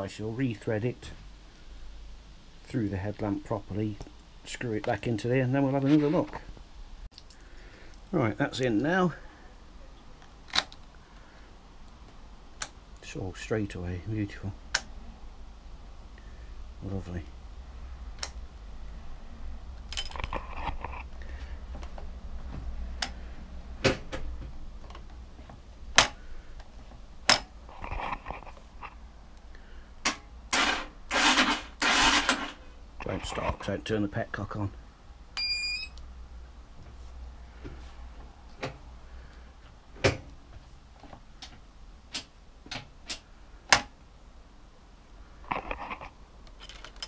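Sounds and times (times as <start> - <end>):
keys jingling: 19.9 - 20.6.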